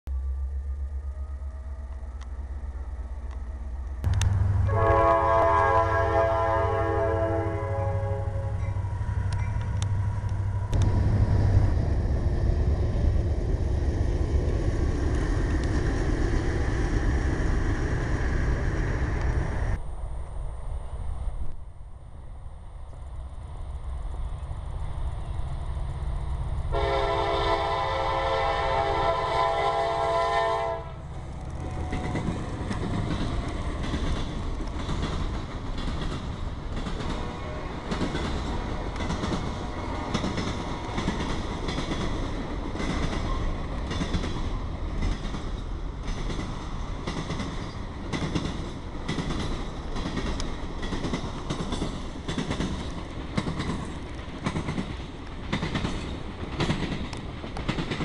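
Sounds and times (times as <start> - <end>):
freight train rumbling past: 0.1 - 58.0
locomotive air horn: 4.4 - 9.4, 26.7 - 31.0
wheels clacking over rail joints: 31.2 - 58.0.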